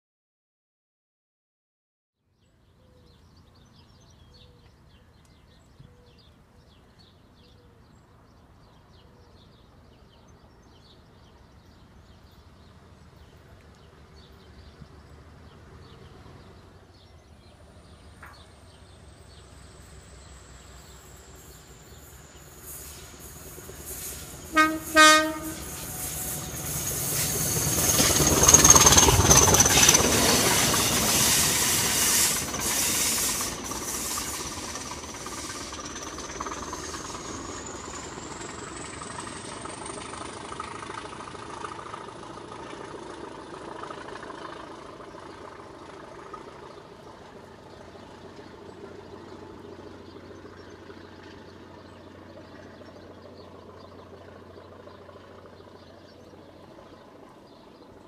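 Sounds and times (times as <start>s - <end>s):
diesel locomotives passing: 5.9s - 58.0s
high locomotive whistle: 19.7s - 34.6s.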